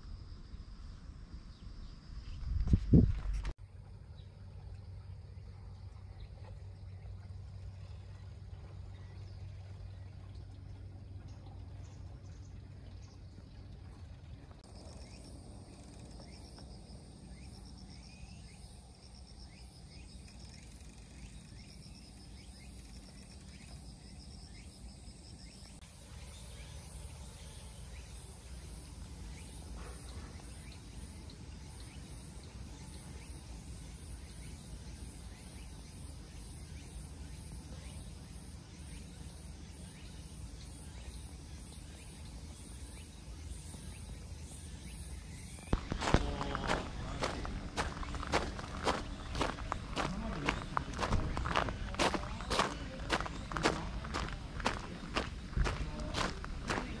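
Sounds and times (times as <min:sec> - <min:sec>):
high insect calls pulsing: 0:14.6 - 0:57.0
steady low rumble: 0:45.7 - 0:57.0.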